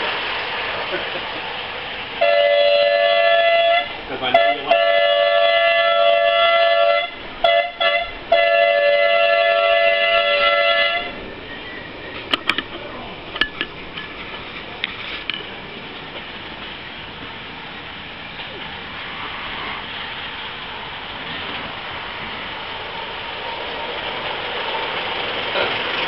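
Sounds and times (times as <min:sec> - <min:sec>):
model train whistle: 0:02.2 - 0:11.2.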